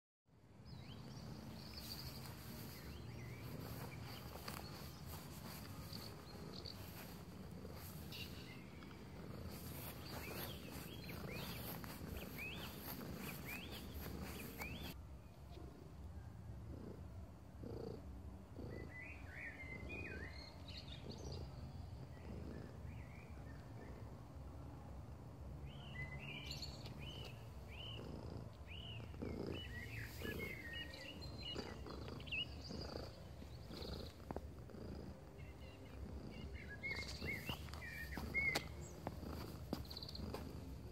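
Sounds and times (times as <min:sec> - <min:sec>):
small birds chirping: 0:00.6 - 0:15.0, 0:17.6 - 0:24.4, 0:25.5 - 0:40.9
cat purring: 0:00.8 - 0:15.0, 0:16.6 - 0:24.4, 0:25.8 - 0:40.9.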